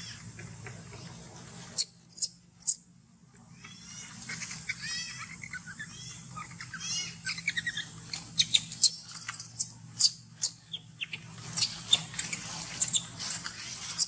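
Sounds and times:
shrill monkey chirps: 1.8 - 2.8, 3.7 - 12.1
baby macaque squealing: 3.6 - 14.0.

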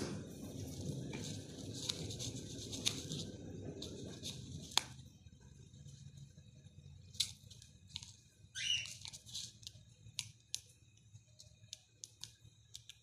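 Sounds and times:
bird flapping and rustling: 0.4 - 4.8.

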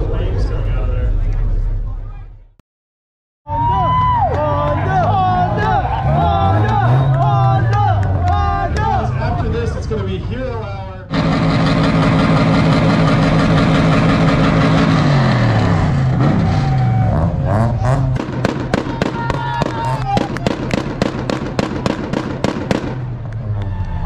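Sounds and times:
car engine revving high: 4.8 - 9.7, 11.1 - 23.8
sharp exhaust bangs: 4.8 - 9.7, 11.0 - 23.7.

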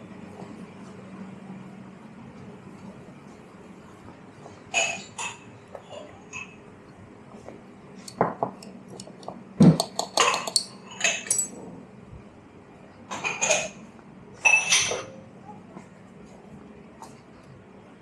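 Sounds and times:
cups and saucers clinking: 4.7 - 6.6, 8.0 - 11.6, 14.4 - 15.2.

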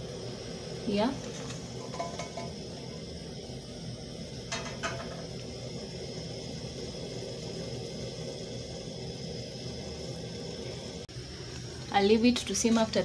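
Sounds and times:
low hiss of cooking pan: 0.0 - 13.0
utensil knocking on pan: 1.8 - 2.6, 4.5 - 5.3.

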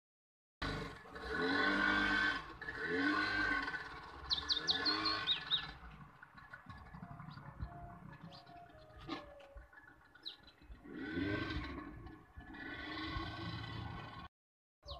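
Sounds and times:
bird chirping: 4.3 - 5.9, 6.7 - 10.8.

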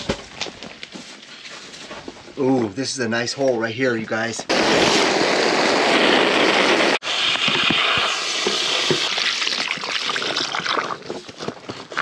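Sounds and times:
water jet hissing and splashing: 4.5 - 11.0.

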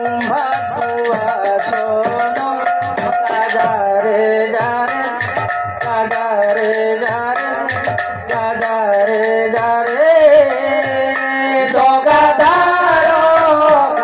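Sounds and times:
person singing: 0.0 - 14.0.

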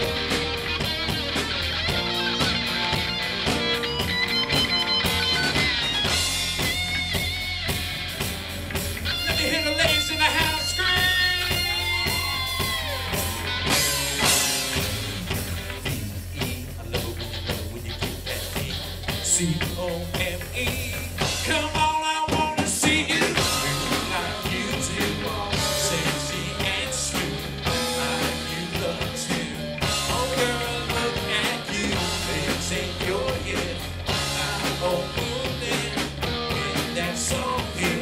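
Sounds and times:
lead guitar bending notes: 0.0 - 15.8
country-rock band playing: 0.0 - 38.0.

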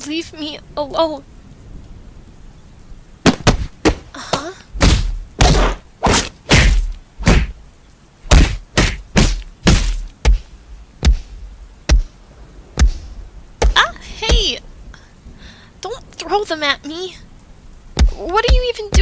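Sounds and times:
heavy punches and body blows: 3.2 - 7.6, 8.3 - 14.6, 18.0 - 19.0.

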